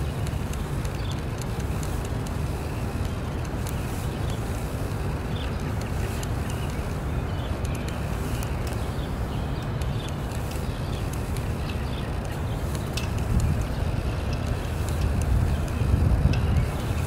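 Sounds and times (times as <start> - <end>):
faint ticks: 0.0 - 17.0
wind buffeting the microphone: 0.0 - 17.0.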